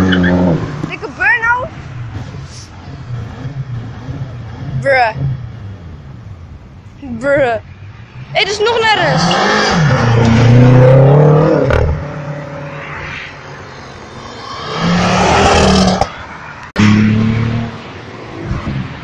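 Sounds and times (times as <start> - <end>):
cars accelerating hard: 8.2 - 19.0.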